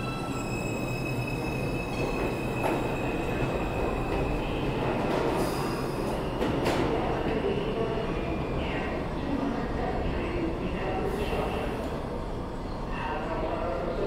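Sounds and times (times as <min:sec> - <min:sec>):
train wheels rumbling on rails: 0:00.0 - 0:08.5.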